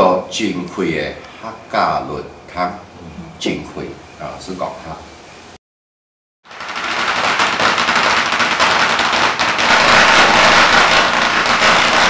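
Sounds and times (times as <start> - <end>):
firecrackers crackling: 6.5 - 12.0.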